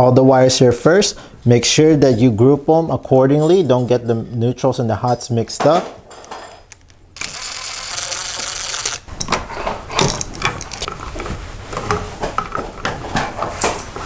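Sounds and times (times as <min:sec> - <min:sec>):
cordless drill running: 0:07.2 - 0:09.1.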